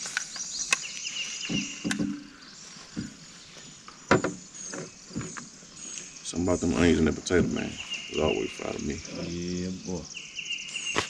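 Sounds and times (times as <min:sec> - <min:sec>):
birds chirping: 0:00.0 - 0:11.0
knocks against a fishing boat: 0:04.1 - 0:04.4.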